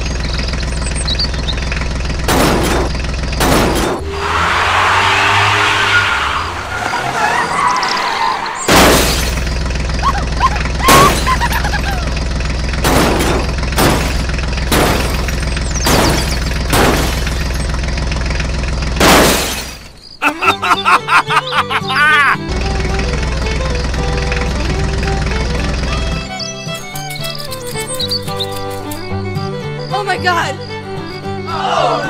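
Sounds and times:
sharp crash-like hits: 2.2 - 4.1, 8.7 - 9.4, 12.8 - 17.5, 19.0 - 19.9
toy tractor engine hum: 9.4 - 12.8, 22.4 - 31.6.

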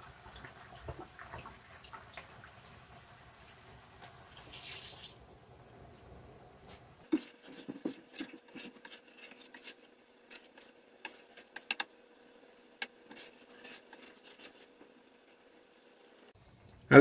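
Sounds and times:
spatula scraping frying pan: 7.0 - 11.8, 12.8 - 14.9.

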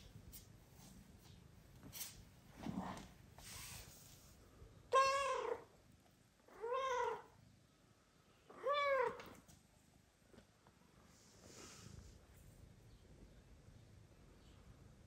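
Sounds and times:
cat meowing loudly: 4.9 - 5.7, 6.6 - 7.3, 8.5 - 9.3.

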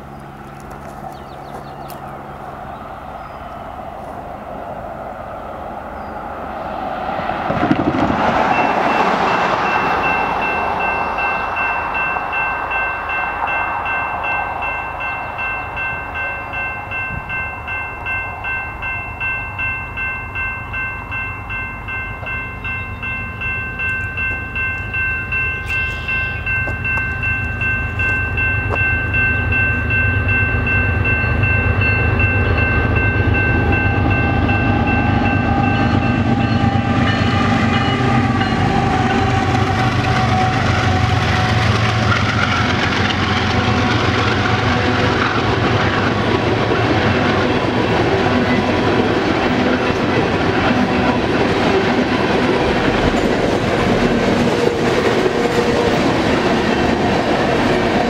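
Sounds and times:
railroad crossing bell ringing: 0.0 - 6.5, 7.6 - 58.0
low train rumble: 0.0 - 58.0.

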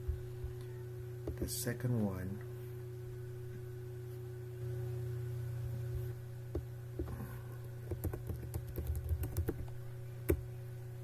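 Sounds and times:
steady low hum: 0.0 - 11.0
keyboard typing: 7.9 - 10.4.

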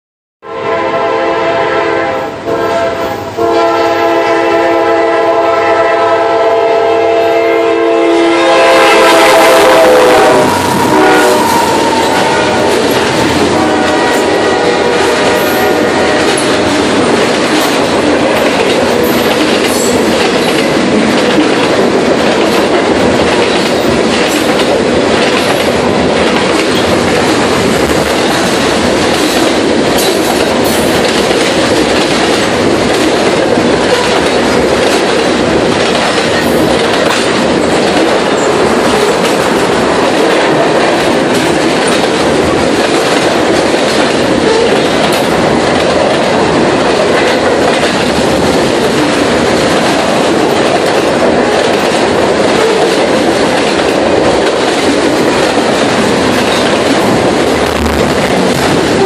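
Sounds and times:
train horn blasts: 0.4 - 16.9
freight train passing: 0.4 - 59.0
wheels clattering on rails: 10.4 - 59.0.

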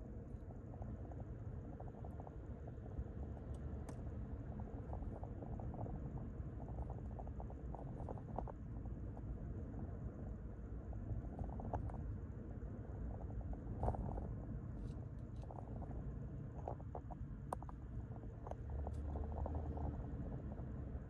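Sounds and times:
engine and tyre rumble: 0.0 - 21.0.

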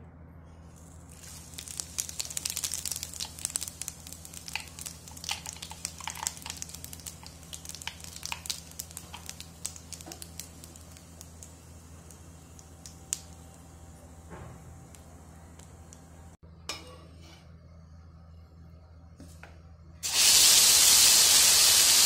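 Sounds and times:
seeds sizzling and popping in oil: 0.7 - 14.1, 20.0 - 22.0.

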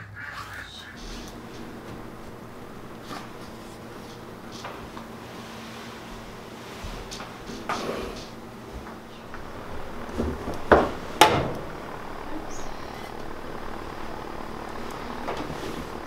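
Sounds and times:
sharp knocks: 10.1 - 11.8.

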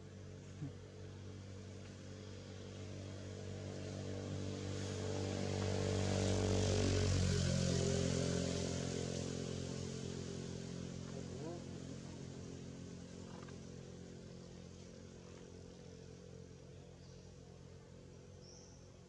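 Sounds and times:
motor engine passing by: 0.0 - 19.0.

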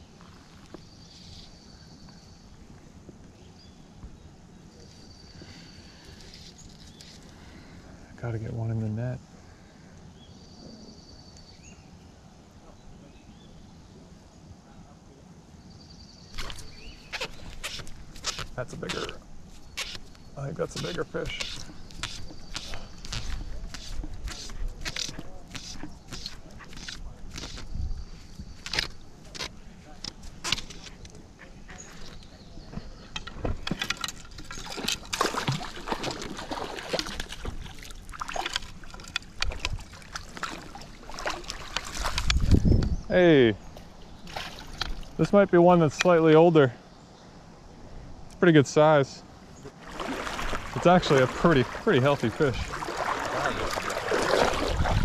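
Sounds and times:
faint bird chirps: 0.0 - 2.7, 3.3 - 7.7, 9.5 - 18.0
fly line stripped by hand: 16.3 - 27.8
water sloshing: 16.3 - 42.7, 43.7 - 45.4, 49.6 - 55.0
fish splashing at surface: 34.6 - 42.2, 49.8 - 55.0.

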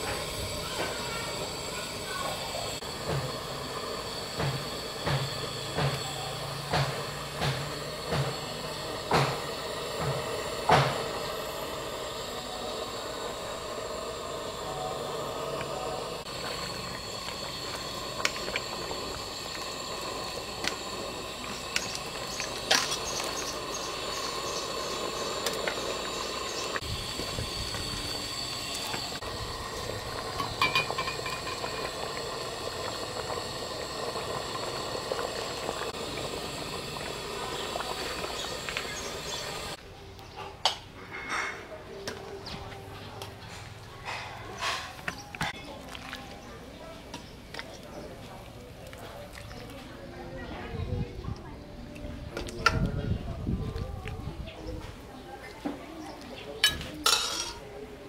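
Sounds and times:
pot simmering hiss: 0.0 - 39.8, 41.8 - 58.0
ladle clinking against pot: 56.6 - 57.6.

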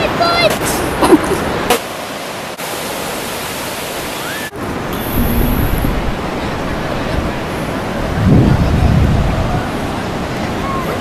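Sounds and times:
surf rushing: 0.0 - 11.0
wind rumble on microphone: 5.0 - 10.2.

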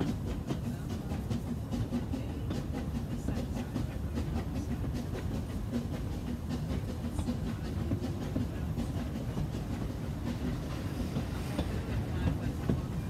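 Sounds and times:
train carriage rumble: 0.0 - 13.0
wheels clanking on rails: 0.0 - 13.0.

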